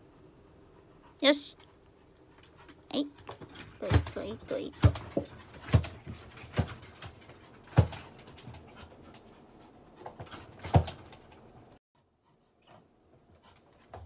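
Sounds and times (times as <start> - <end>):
dog paws and claws clicking: 1.6 - 11.7.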